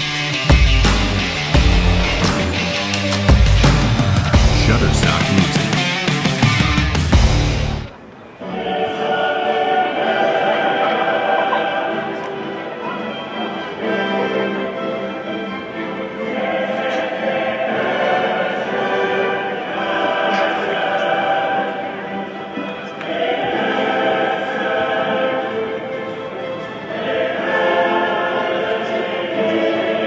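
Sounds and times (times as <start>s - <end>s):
choir singing held chords: 0.0s - 30.0s.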